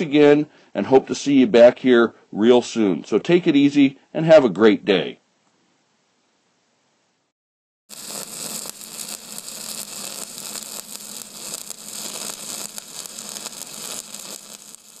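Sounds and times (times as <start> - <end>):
light crackle: 7.9 - 15.0
loud static hiss: 7.9 - 15.0.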